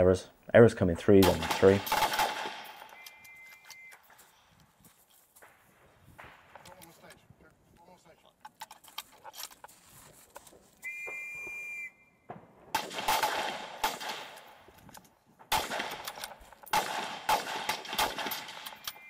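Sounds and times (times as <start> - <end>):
rifle shots echoing: 1.2 - 3.0, 6.2 - 6.8, 12.3 - 14.7, 15.5 - 19.0
whistle blown: 2.9 - 4.0, 10.8 - 12.3.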